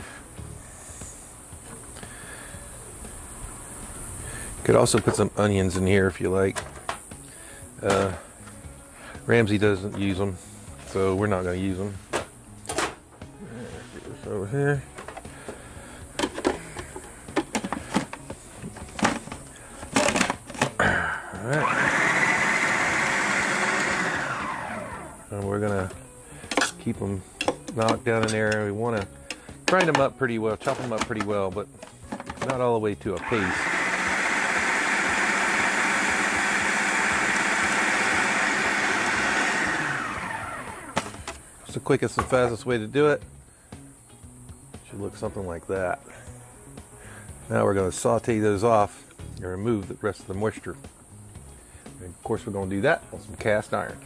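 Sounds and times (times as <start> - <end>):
motor winding down: 20.8 - 26.0, 33.2 - 41.4
food processor running: 21.5 - 25.2, 33.2 - 41.2.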